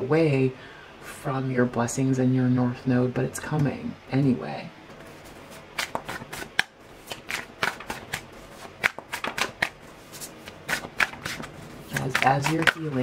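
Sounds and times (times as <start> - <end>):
cards being shuffled: 4.9 - 13.0.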